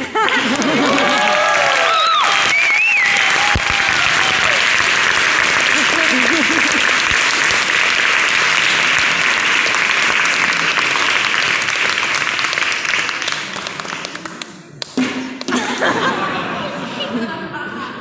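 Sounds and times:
audience applause: 0:00.0 - 0:15.6
sharp knock: 0:15.0 - 0:15.5.

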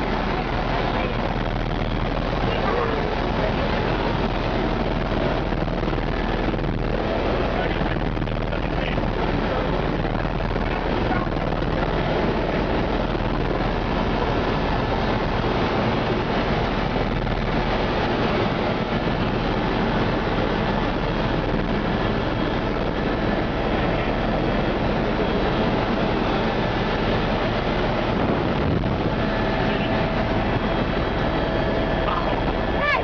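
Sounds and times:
helicopter engine and rotor noise: 0:00.0 - 0:33.0.

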